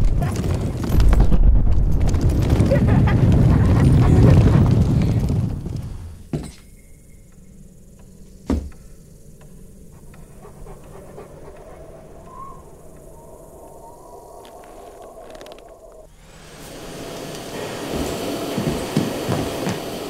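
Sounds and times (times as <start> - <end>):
faint low hum: 6.0 - 16.6
dog panting and sniffing: 10.0 - 12.5.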